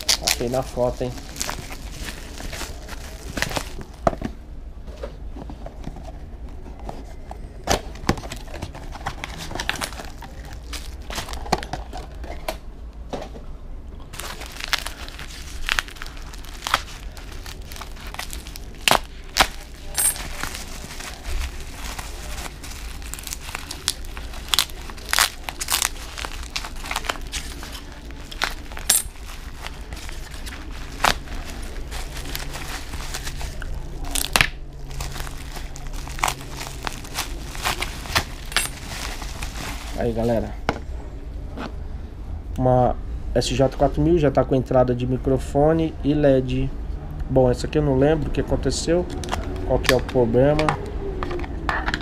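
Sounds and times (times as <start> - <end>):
bubble wrap crackling: 0.0 - 4.1, 7.0 - 12.2, 14.1 - 40.5
knife cutting bubble wrap: 14.2 - 34.5.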